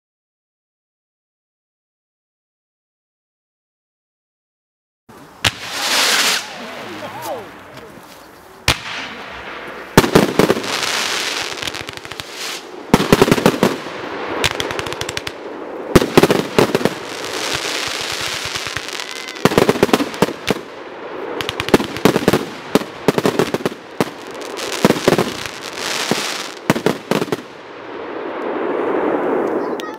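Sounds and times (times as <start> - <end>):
fireworks crackling: 5.1 - 29.9
fireworks bangs: 5.4 - 8.0, 8.6 - 29.9.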